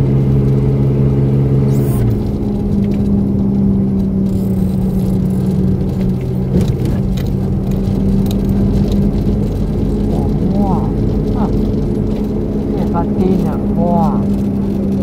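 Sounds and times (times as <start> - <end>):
car engine hum: 0.0 - 15.0
road noise rumble: 0.0 - 15.0.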